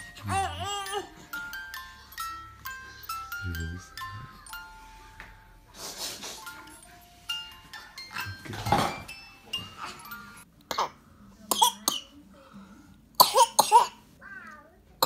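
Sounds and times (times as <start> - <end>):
soft music with held notes: 0.0 - 10.7
baby coughing squeals and grunts: 13.2 - 14.0.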